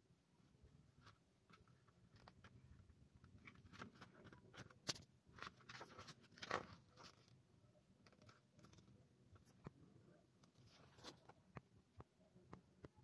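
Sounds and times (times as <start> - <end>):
paper pages rustling: 3.3 - 7.4, 8.0 - 9.7, 10.4 - 11.6.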